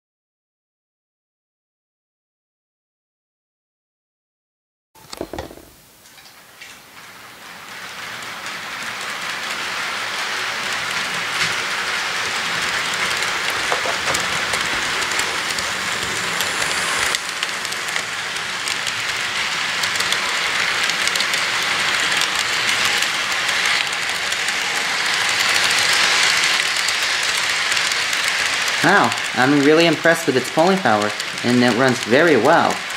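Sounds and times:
model train wheels clattering on rails: 0:05.0 - 0:32.9.

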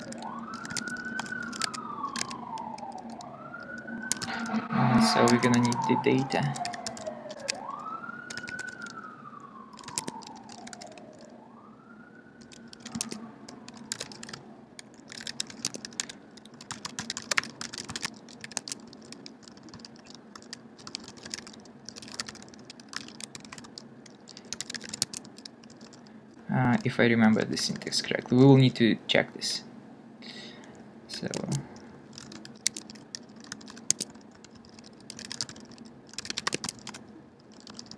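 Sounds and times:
typing on computer keyboard: 0:00.0 - 0:09.0, 0:09.7 - 0:11.3, 0:12.4 - 0:26.1, 0:31.2 - 0:37.9
faint siren wailing: 0:00.0 - 0:28.1.

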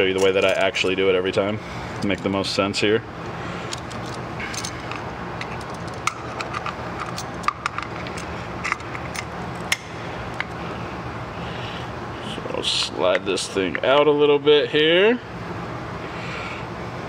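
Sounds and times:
steady low hum: 0:00.0 - 0:17.0
metal tools clicking and clinking: 0:00.1 - 0:00.9, 0:03.7 - 0:09.8.

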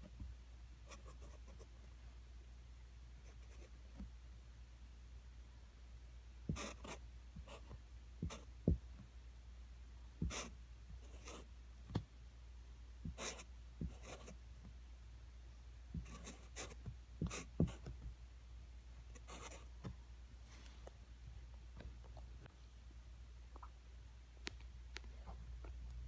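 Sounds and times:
marker drawing on poster board: 0:00.9 - 0:01.7, 0:03.2 - 0:04.1, 0:06.5 - 0:09.0, 0:10.2 - 0:12.0, 0:13.0 - 0:14.4, 0:15.9 - 0:18.0, 0:19.1 - 0:19.9.

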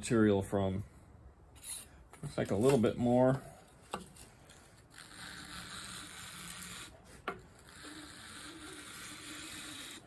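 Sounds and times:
wood rasping on sandpaper: 0:04.1 - 0:10.0.

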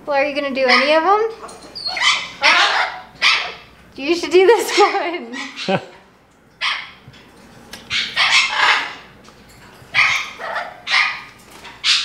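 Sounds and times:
parrot squawking harshly: 0:01.8 - 0:03.7, 0:04.6 - 0:05.9, 0:07.9 - 0:09.0, 0:09.9 - 0:12.0.

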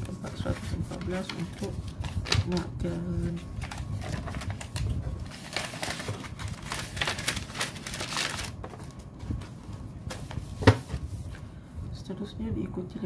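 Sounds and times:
paper envelopes rustling: 0:00.0 - 0:11.4.

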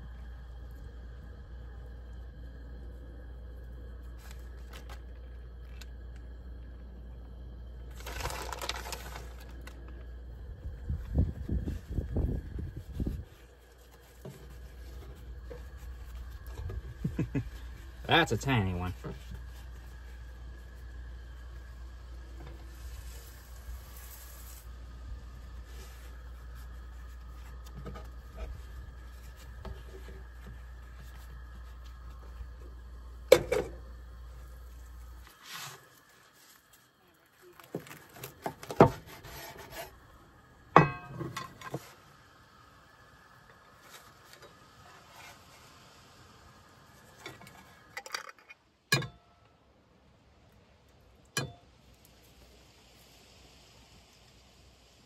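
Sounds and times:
constant low hum: 0:00.0 - 0:55.0
tortillas rustling: 0:07.8 - 0:18.1, 0:33.8 - 0:40.1.

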